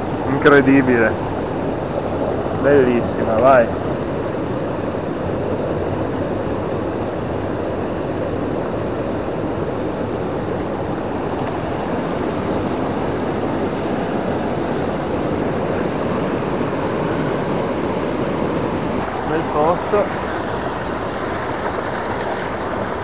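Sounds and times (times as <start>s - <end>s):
torrent rushing over boulders: 8.2s - 23.0s.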